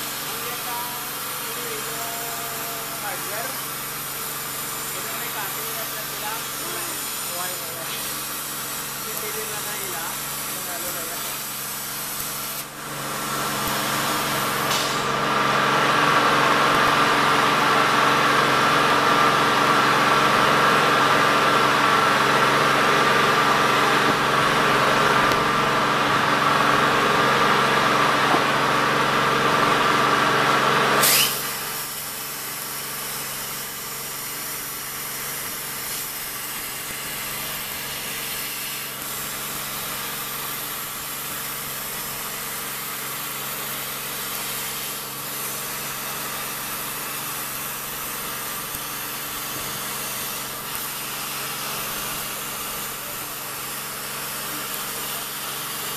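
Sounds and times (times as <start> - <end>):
plasma cutter hiss and whine: 0.0 - 15.2, 31.0 - 55.9
machine hum: 0.0 - 55.4.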